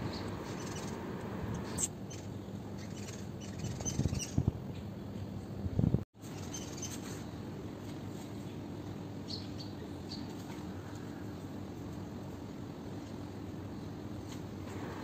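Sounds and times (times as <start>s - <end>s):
small birds chirping: 0.0s - 4.9s, 6.2s - 7.3s, 8.4s - 11.2s.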